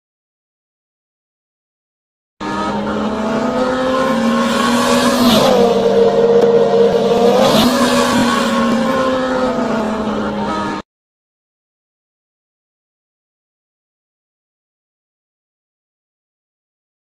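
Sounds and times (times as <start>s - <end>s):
road and wind noise: 2.4s - 10.8s
vehicle engine running hard: 2.4s - 10.8s.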